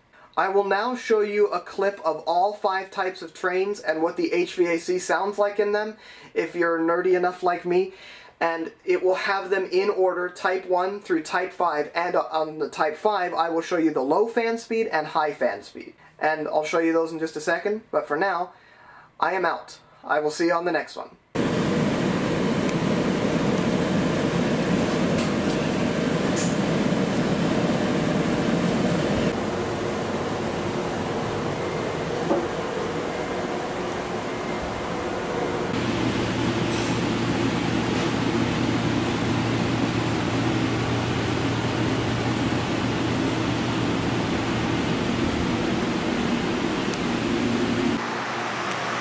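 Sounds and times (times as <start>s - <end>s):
steady air-conditioning hum: 0.0s - 48.3s
air-conditioning blower rushing: 21.4s - 49.0s.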